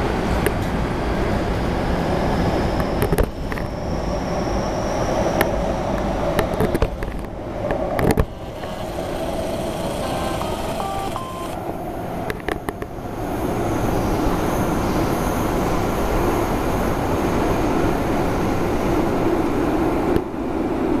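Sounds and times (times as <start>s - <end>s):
train rumbling past: 0.0s - 10.9s
sharp train clicks: 5.4s - 13.0s.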